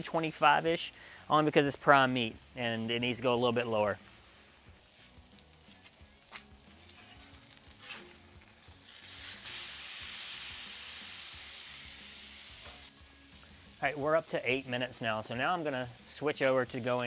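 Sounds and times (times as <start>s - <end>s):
steak sizzling on a griddle: 0.0s - 17.0s
metal spatula scraping: 6.8s - 8.4s.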